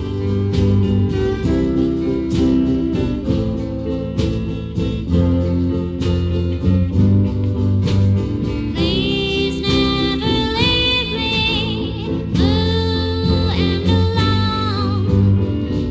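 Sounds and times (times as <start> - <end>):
slow band music: 0.0 - 15.9
person singing: 8.7 - 15.9.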